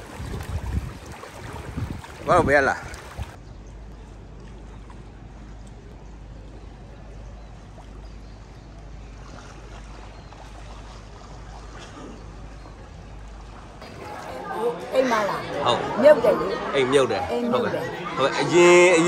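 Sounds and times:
floodwater rushing: 0:00.0 - 0:03.4, 0:09.2 - 0:19.0.

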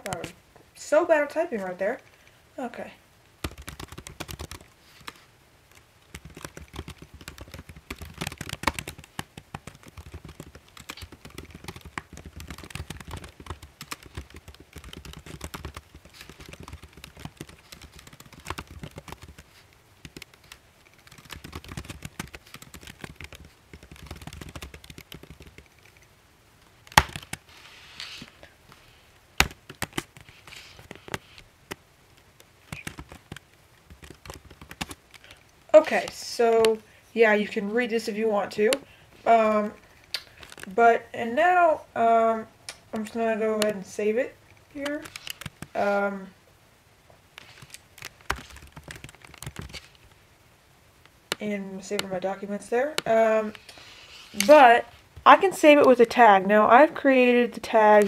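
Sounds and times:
computer keyboard typing: 0:03.4 - 0:26.1, 0:26.9 - 0:27.4, 0:29.4 - 0:31.2, 0:32.7 - 0:36.8, 0:44.8 - 0:45.8, 0:47.4 - 0:50.0.

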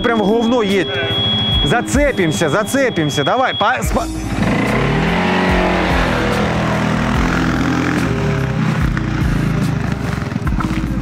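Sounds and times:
atv engine revving: 0:03.9 - 0:11.0.

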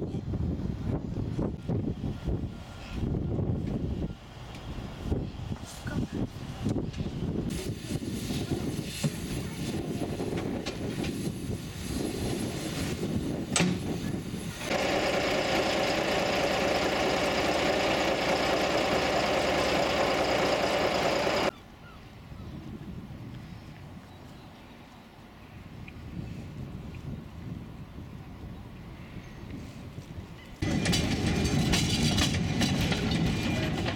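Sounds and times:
wind buffeting microphone: 0:00.0 - 0:14.7, 0:22.1 - 0:24.5, 0:25.5 - 0:33.9
steam locomotive hissing steam: 0:07.5 - 0:21.5.

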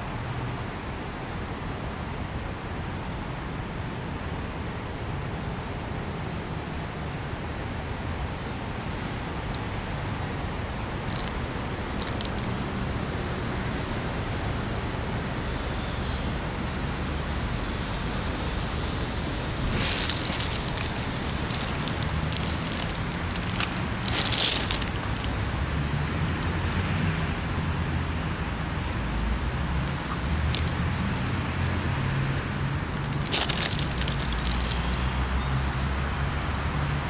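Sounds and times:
distant road traffic hum: 0:00.0 - 0:37.0
dry leaves rustling: 0:10.9 - 0:13.0, 0:19.5 - 0:26.0, 0:29.5 - 0:31.2, 0:32.8 - 0:35.8.

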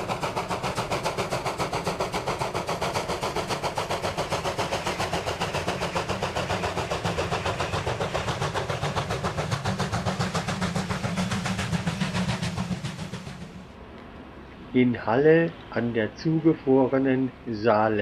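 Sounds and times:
steam locomotive chuffing: 0:00.0 - 0:13.8
train rumble: 0:00.0 - 0:18.0.

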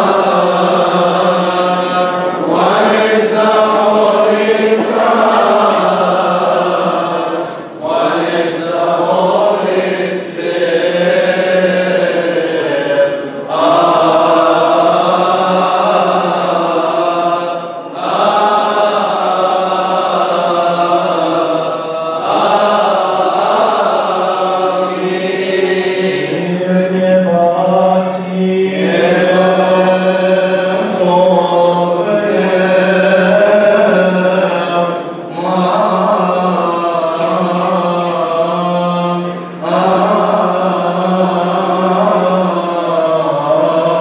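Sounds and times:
liturgical chant singing: 0:00.0 - 0:44.0.

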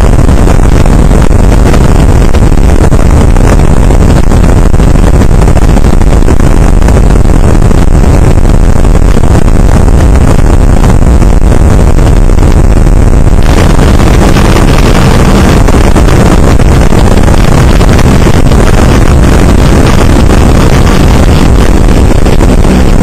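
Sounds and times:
outboard motor running: 0:06.9 - 0:23.0.

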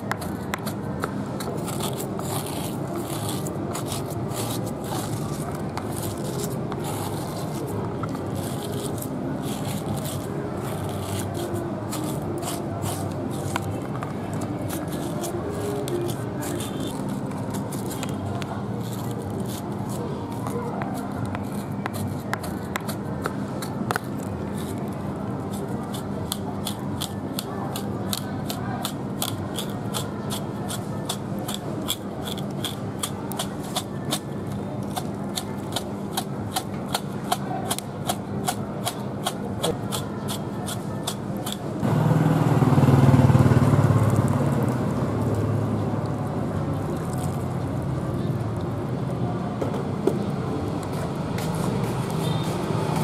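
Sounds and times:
street hum: 0:00.0 - 0:53.0
knife scraping hide: 0:00.1 - 0:41.7.

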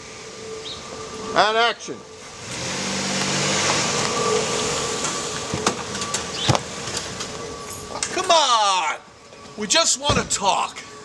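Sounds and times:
car driving and stopping: 0:00.0 - 0:11.0.

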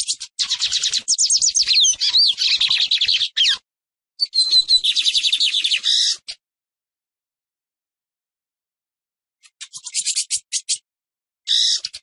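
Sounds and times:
bird singing high repeated notes: 0:00.0 - 0:03.6, 0:04.2 - 0:05.8.

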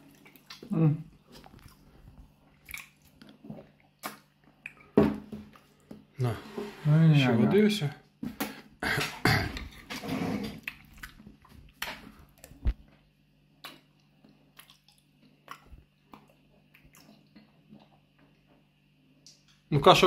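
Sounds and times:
chewing: 0:00.0 - 0:05.0, 0:10.6 - 0:12.9, 0:13.6 - 0:19.5
wet clicks and smacks: 0:02.6 - 0:05.0, 0:10.6 - 0:12.9, 0:13.6 - 0:18.4.

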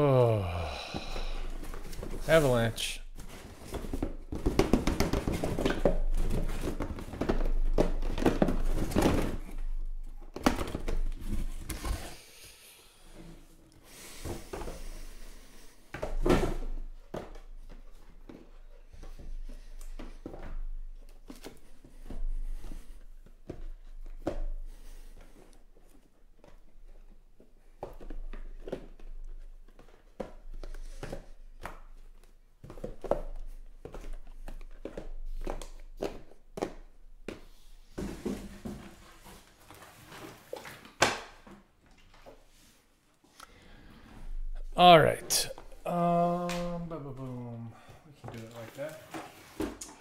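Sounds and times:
cardboard boxes knocking on table: 0:03.2 - 0:09.6.

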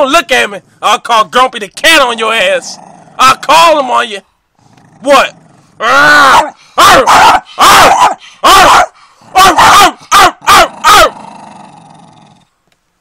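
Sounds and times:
dog barking: 0:06.2 - 0:11.2.

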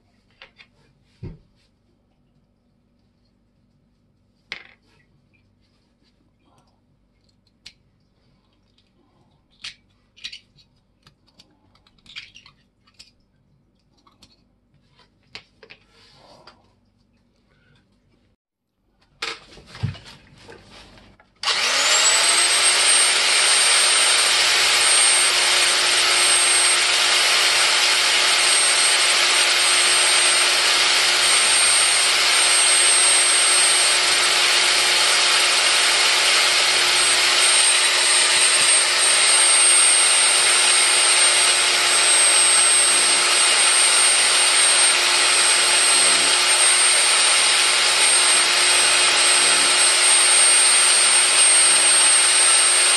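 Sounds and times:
electric drill whining: 0:21.4 - 0:52.9.

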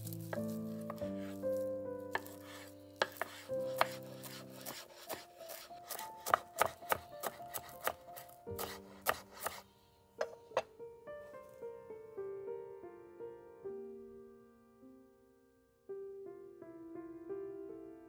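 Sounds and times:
quiet background music: 0:00.0 - 0:18.0
knife chopping on wooden board: 0:00.1 - 0:09.6, 0:10.2 - 0:10.7.

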